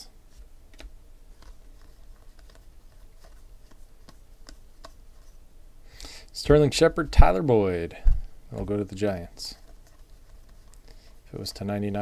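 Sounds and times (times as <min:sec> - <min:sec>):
cards being shuffled: 0:00.3 - 0:05.4, 0:08.5 - 0:12.0.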